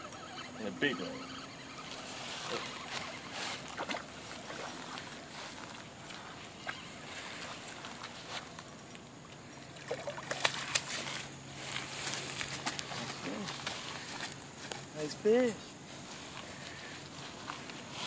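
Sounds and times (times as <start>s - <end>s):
rustling on grass: 1.0s - 8.7s, 10.4s - 18.0s
fish splashing at water surface: 9.6s - 11.3s.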